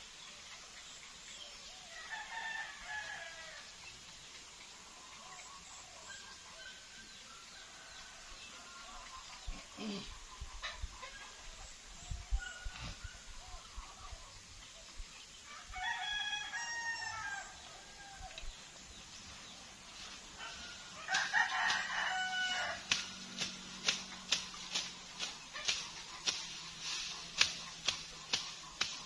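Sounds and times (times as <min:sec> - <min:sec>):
rooster crowing: 0:15.6 - 0:18.3, 0:20.4 - 0:22.9
blade slashing through grass: 0:21.1 - 0:29.0.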